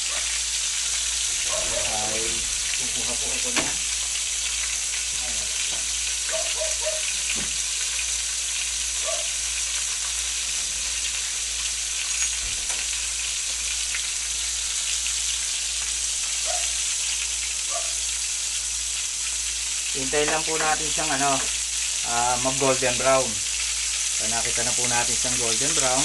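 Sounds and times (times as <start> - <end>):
food sizzling in hot oil: 0.0 - 26.0.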